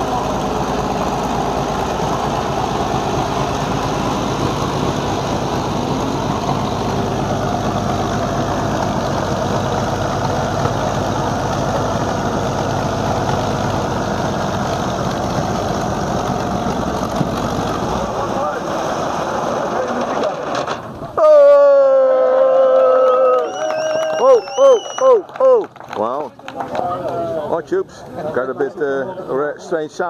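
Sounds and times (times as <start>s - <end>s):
tank engine running: 0.0s - 21.2s.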